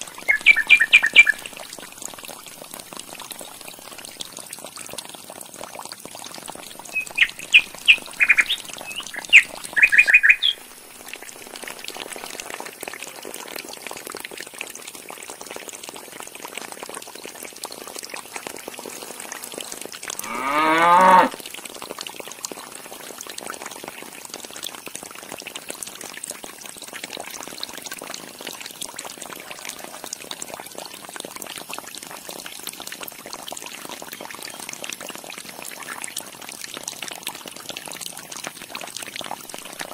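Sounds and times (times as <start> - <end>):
water pouring into trough: 0.0 - 39.9
animal call rising in pitch: 20.2 - 21.4.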